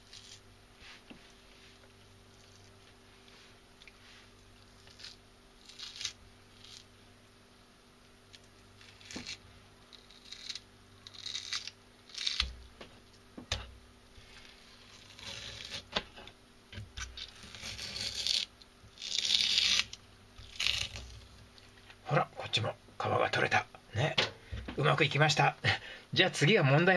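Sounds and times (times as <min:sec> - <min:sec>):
fish skin peeling and tearing: 0:00.0 - 0:00.4, 0:04.6 - 0:06.9, 0:08.3 - 0:12.6, 0:14.2 - 0:16.0, 0:17.0 - 0:21.7.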